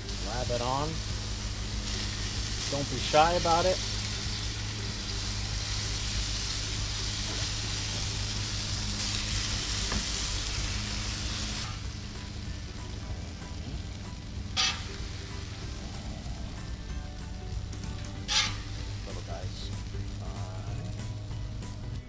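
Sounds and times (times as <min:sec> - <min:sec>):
chicken sizzling on a griddle: 0:00.0 - 0:22.0.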